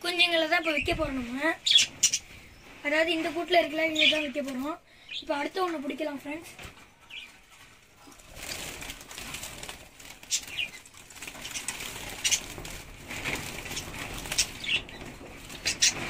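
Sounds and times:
birds fluttering in wire cage: 6.6s - 16.0s.

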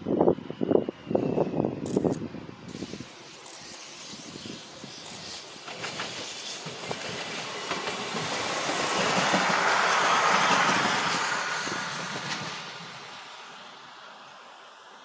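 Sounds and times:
passenger train passing: 0.0s - 15.0s
wheels clicking over rail joints: 3.3s - 12.9s.

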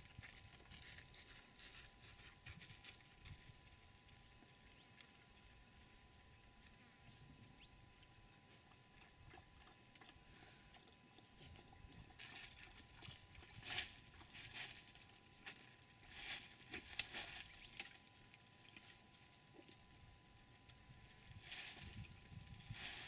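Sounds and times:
leaves and twigs rustling: 0.0s - 5.2s, 13.4s - 19.9s, 21.0s - 23.0s.

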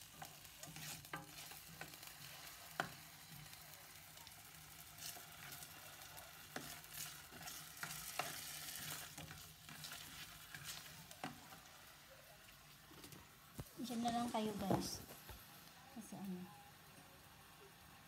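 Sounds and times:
spatula scraping and knocking pan: 0.0s - 3.0s, 5.0s - 11.6s
potatoes sizzling in oil: 0.0s - 18.0s.

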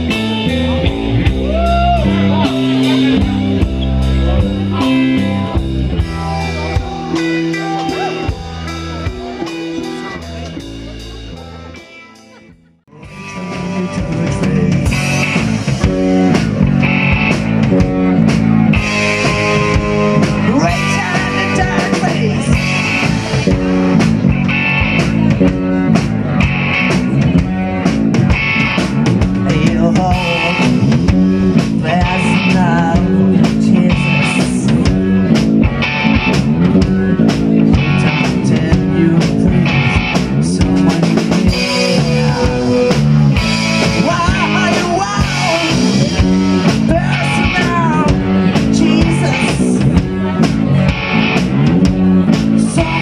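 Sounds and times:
bass guitar: 0.0s - 53.0s
drum kit beat: 0.0s - 53.0s
electric guitars: 0.0s - 53.0s
person singing: 11.3s - 17.1s, 29.4s - 35.4s, 36.6s - 53.0s.

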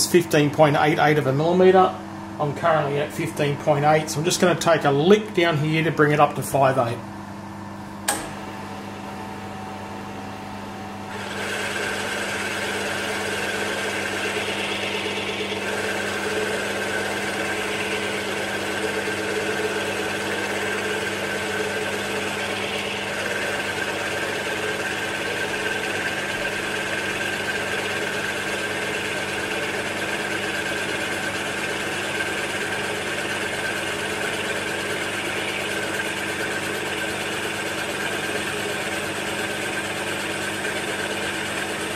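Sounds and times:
milling machine motor hum: 0.0s - 41.9s
boring bar cutting metal: 11.1s - 41.9s.

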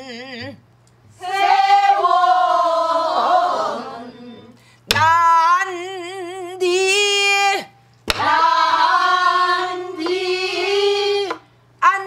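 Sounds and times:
woman singing with wide vibrato: 0.0s - 0.6s, 1.2s - 12.0s
barrel drum beats: 8.1s - 8.4s.

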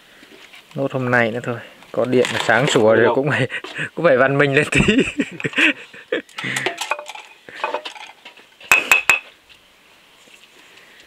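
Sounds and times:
utensils clinking against dishes: 6.4s - 9.2s.

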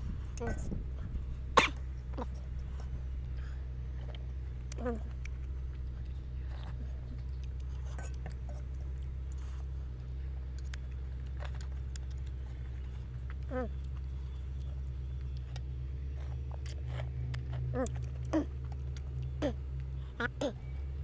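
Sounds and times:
steady low hum: 0.0s - 21.0s
mouth sounds of eating noodles: 15.5s - 20.9s.

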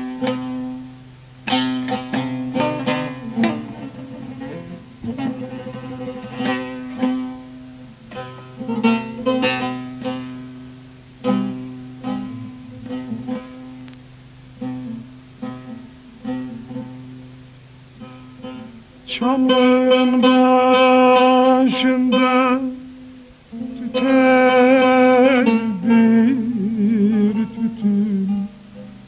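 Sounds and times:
plucked lute notes: 0.0s - 29.0s
low drone: 12.0s - 13.9s.

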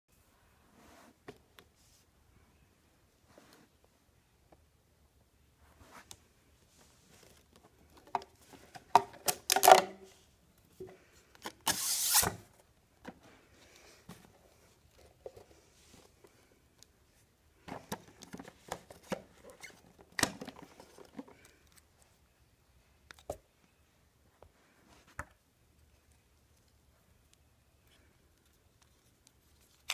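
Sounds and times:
packaging rubbing and sliding: 11.6s - 12.4s.

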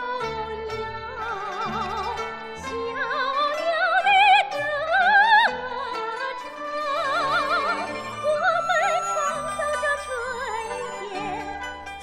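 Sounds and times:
soprano singing: 0.0s - 12.0s
traditional orchestra: 0.0s - 12.0s.

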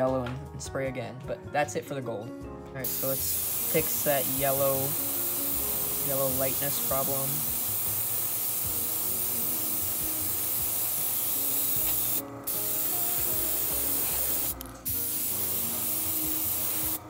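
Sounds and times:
airbrush hissing: 2.8s - 17.0s.

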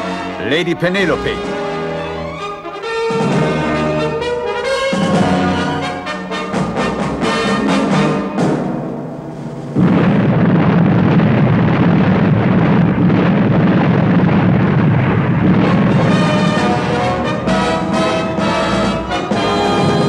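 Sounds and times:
brass orchestral music: 0.0s - 9.8s, 15.5s - 20.0s
explosion sound effect: 9.6s - 18.4s.

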